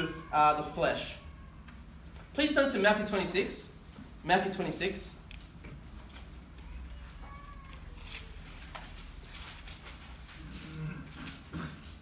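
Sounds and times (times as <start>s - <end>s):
paper rustles: 7.3s - 12.0s
pages being leafed through: 7.7s - 11.4s.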